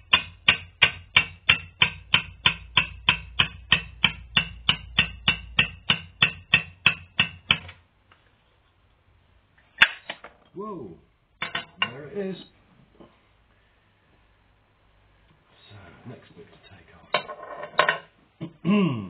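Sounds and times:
hammer tapping metal punch: 0.0s - 7.8s, 11.4s - 12.1s.

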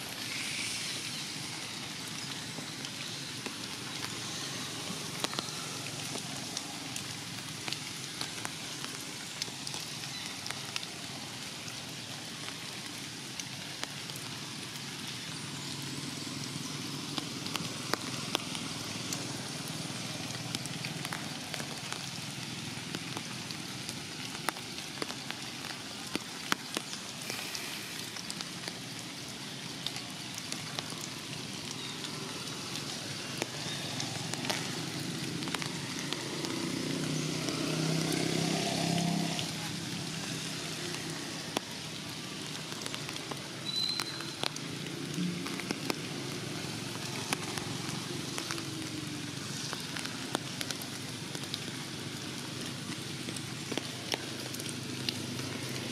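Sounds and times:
rain falling through leaves: 0.0s - 55.9s.

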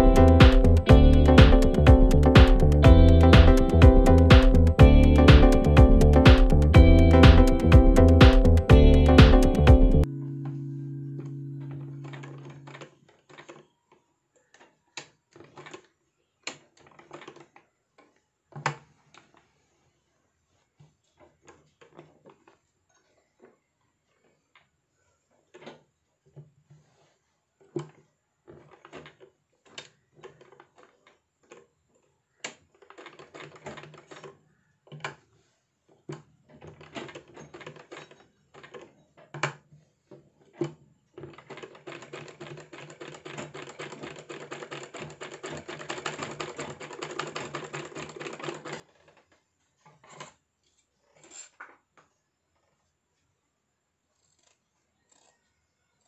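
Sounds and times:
sewing machine stitching: 26.7s - 35.2s, 40.4s - 50.4s.

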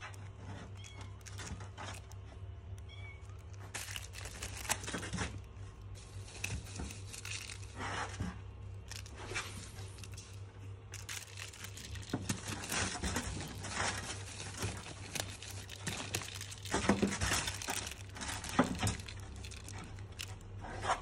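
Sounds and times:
plastic wrapping crinkling: 0.0s - 20.6s
kitten chirping: 2.8s - 3.4s.

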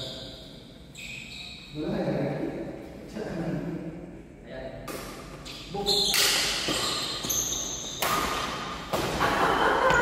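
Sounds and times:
badminton racket hitting shuttlecock: 6.1s - 9.2s.

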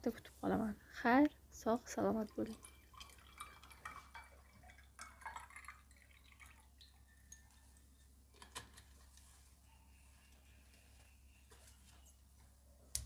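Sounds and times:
liquid poured into glass with ice: 2.4s - 7.7s.

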